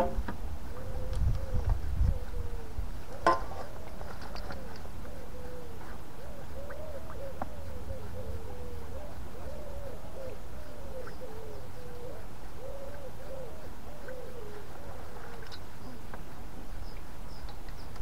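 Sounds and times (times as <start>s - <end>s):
wind rumble on microphone: 0.0s - 6.0s
bird cooing: 0.0s - 16.3s.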